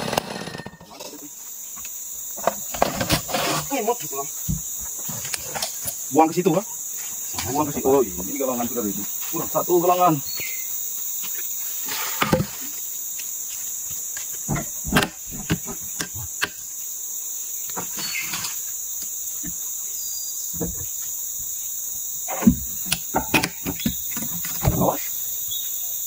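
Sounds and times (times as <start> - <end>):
forest insects droning: 0.0 - 26.0
wooden boards knocking and thudding: 14.4 - 16.6, 20.5 - 21.0, 22.3 - 25.0.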